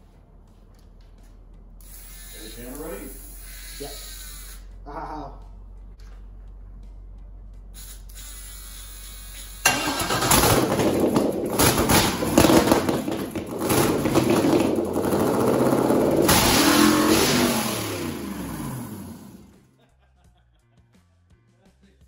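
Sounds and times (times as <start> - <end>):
car engine revving: 9.6 - 19.6.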